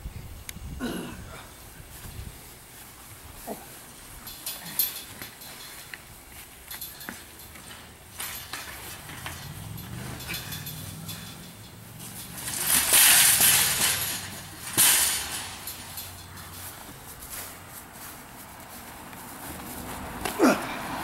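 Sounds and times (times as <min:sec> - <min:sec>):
wire shopping cart rattling: 0:03.5 - 0:18.1
clattering crash: 0:07.0 - 0:16.6.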